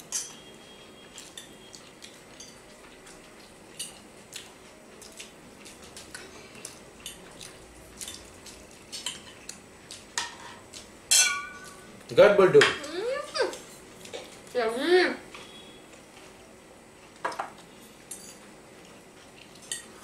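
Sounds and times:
cutlery clinking on plates: 0.0s - 0.4s, 10.2s - 11.8s, 17.2s - 18.5s, 19.5s - 20.0s.

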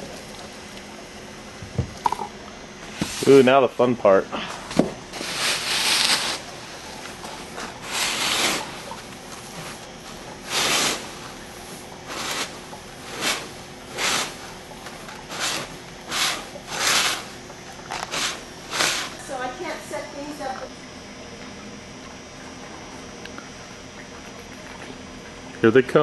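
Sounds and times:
hand scraping gritty substrate: 2.9s - 3.5s, 5.1s - 19.4s.

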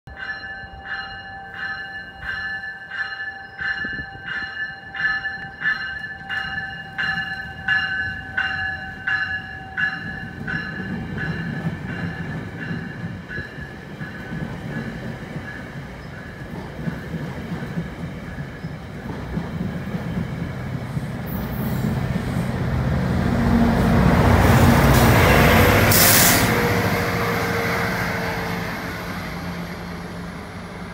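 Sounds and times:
train bell ringing: 0.1s - 19.0s
train cars rumbling past: 0.7s - 30.9s
burst of hiss: 25.9s - 26.5s.

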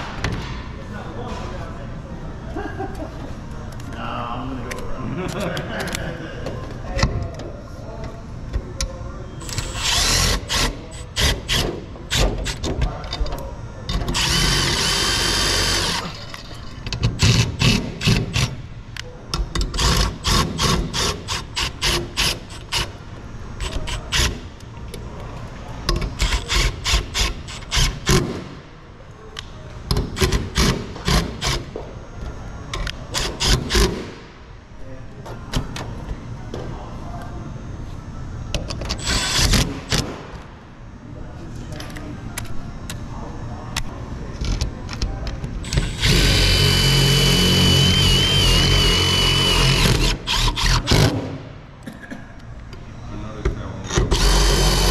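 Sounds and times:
cordless drill driving screws: 9.4s - 11.6s, 14.2s - 16.2s, 45.7s - 51.1s, 54.1s - 54.9s.

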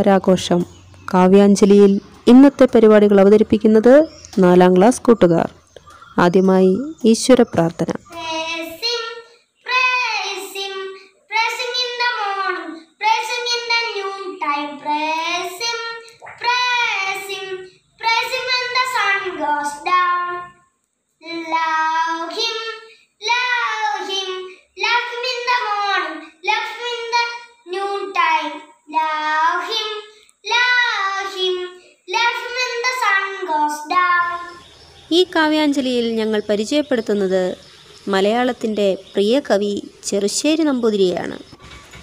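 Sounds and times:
boy singing unaccompanied: 8.0s - 20.6s, 21.2s - 35.4s.

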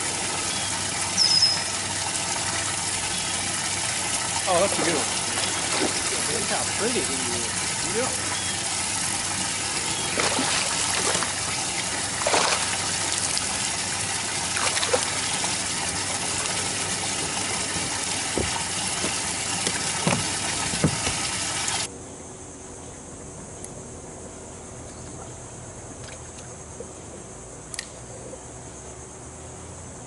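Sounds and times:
rushing water: 0.0s - 21.9s
fish splashing at surface: 1.7s - 21.9s.

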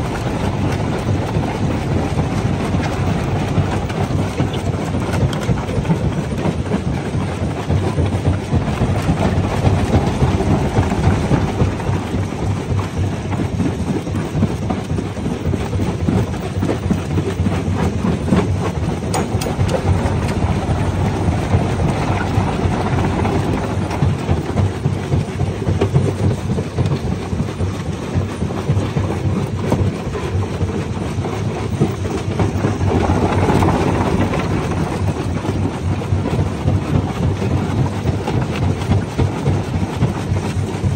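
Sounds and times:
rock crusher rumbling: 8.3s - 13.9s, 17.3s - 27.4s, 30.8s - 37.3s.

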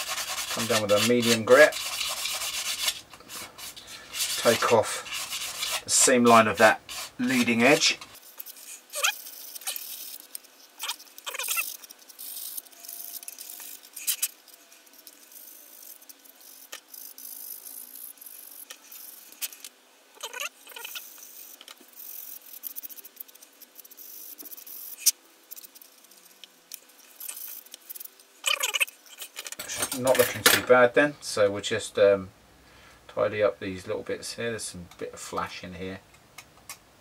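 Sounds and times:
sanding stick rubbing plastic: 0.0s - 19.4s.

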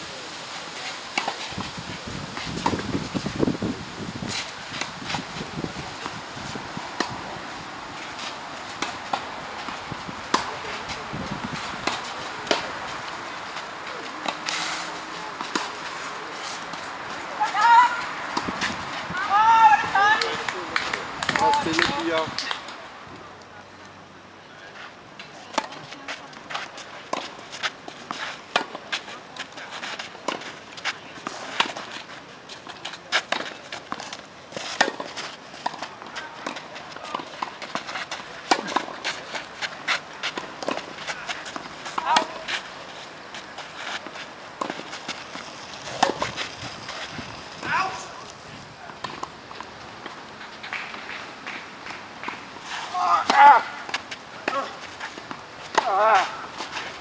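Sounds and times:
tennis balls struck by rackets: 8.0s - 16.0s, 16.7s - 22.7s, 33.0s - 57.0s.

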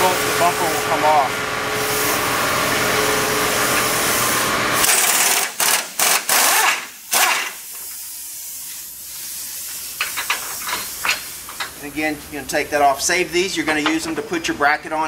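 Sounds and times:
air hissing: 3.5s - 11.9s
air wrench running: 3.6s - 11.8s.

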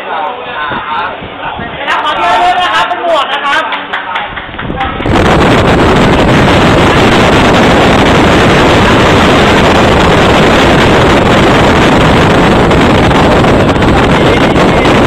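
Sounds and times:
loud rushing noise: 4.4s - 15.0s.

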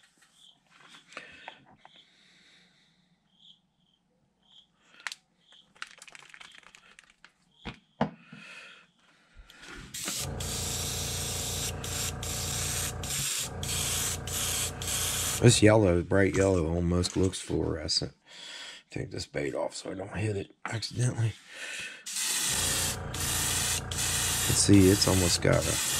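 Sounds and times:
airbrush spraying hiss: 9.9s - 15.6s, 22.1s - 25.9s.

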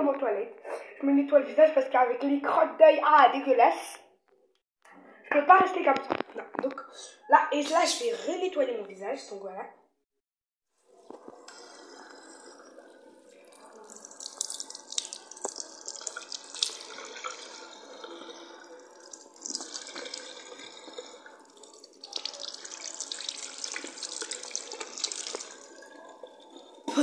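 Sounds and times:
tap water splashing: 13.9s - 17.5s, 19.0s - 25.7s.

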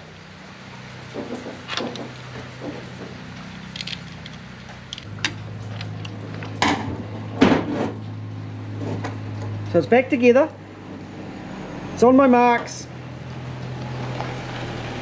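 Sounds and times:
metal parts clicking and knocking: 3.6s - 6.1s.

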